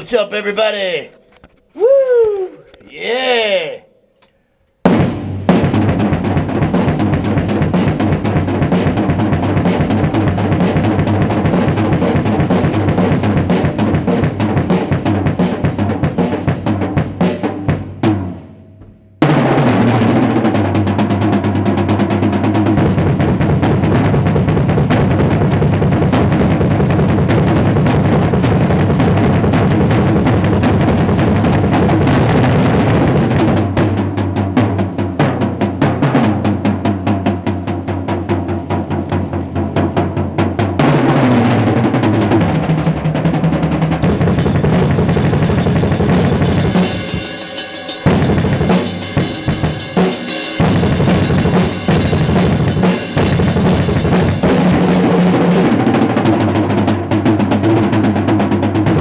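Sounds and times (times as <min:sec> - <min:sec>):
snare and tom rolls: 0:04.9 - 0:59.0
bass drum strokes: 0:22.5 - 0:56.8
cymbal wash: 0:44.1 - 0:54.4.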